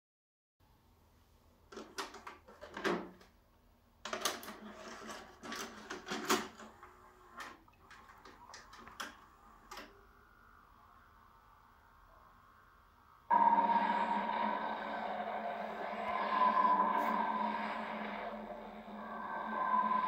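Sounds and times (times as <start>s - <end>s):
vcr loading mechanism clicks and clunks: 4.1s - 9.9s.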